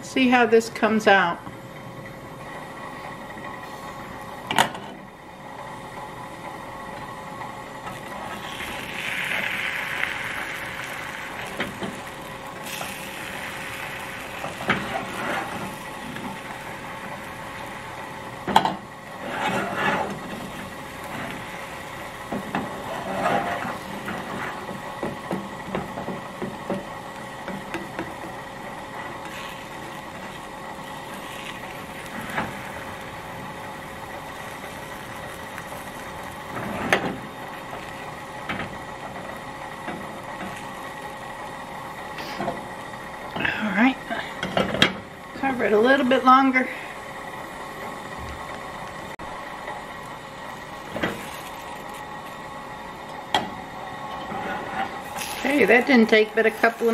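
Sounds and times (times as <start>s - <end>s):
spatula scraping frying pan: 14.4s - 15.8s, 19.2s - 21.4s, 22.6s - 24.7s.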